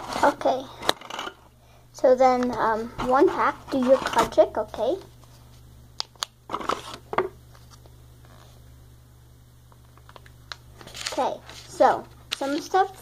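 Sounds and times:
faint low hum: 0.0 - 13.0
paper crinkling rustle: 10.0 - 12.9.

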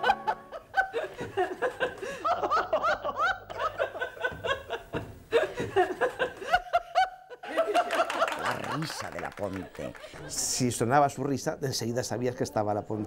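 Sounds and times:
woman laughing: 0.0 - 8.8.

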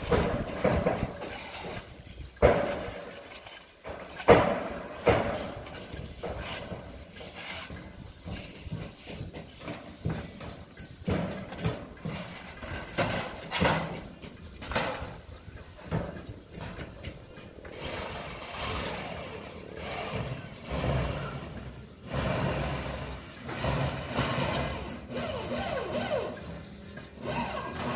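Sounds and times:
steady mechanical noise: 0.0 - 27.9.

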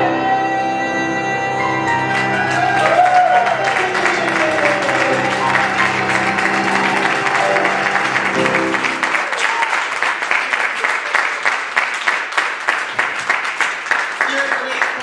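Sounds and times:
grand piano chord: 1.4 - 9.3
audience applause: 1.8 - 15.0.

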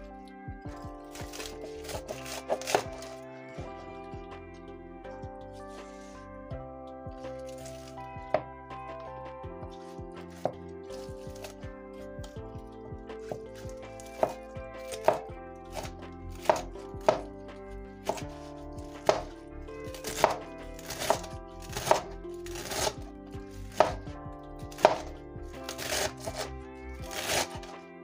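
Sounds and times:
soft background music: 0.0 - 28.0
cleaver chopping on cutting board: 1.2 - 3.2, 13.2 - 17.3, 18.0 - 18.4, 19.0 - 19.3, 19.9 - 23.0, 23.7 - 24.0, 24.7 - 27.7.

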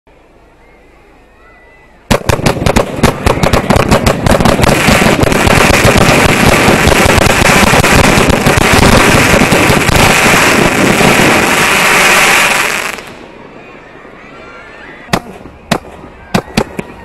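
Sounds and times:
fireworks fountain hissing: 2.0 - 13.6
fireworks fountain cracking: 2.1 - 13.3.

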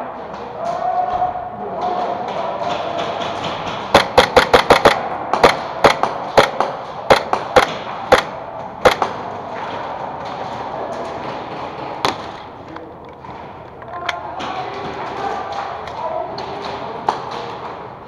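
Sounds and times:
airsoft gunshots: 3.0 - 9.2.

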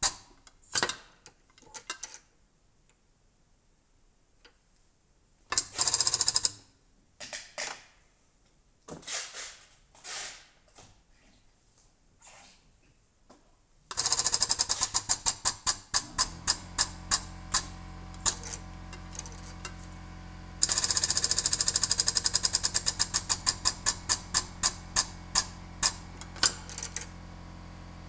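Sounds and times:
hydraulic pump strokes clattering: 14.0 - 20.0, 20.6 - 27.2
steady low hum: 16.0 - 28.0.

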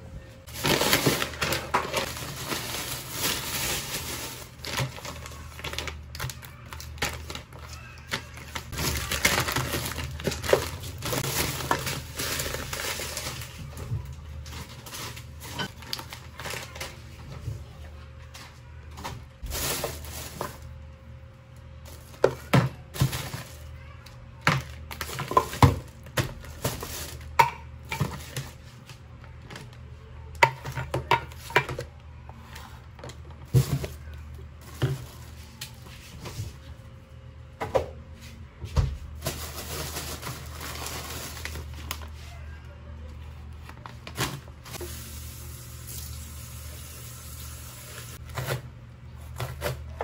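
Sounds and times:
plastic bag rustling: 0.4 - 17.4, 19.0 - 20.9, 21.8 - 28.9, 32.4 - 36.8, 39.0 - 42.5, 43.1 - 45.4.

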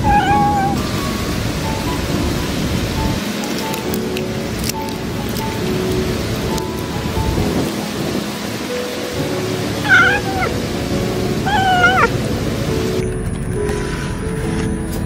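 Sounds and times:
kitten meowing: 0.0 - 0.8, 9.8 - 10.6, 11.4 - 12.2
background music: 0.0 - 15.0.

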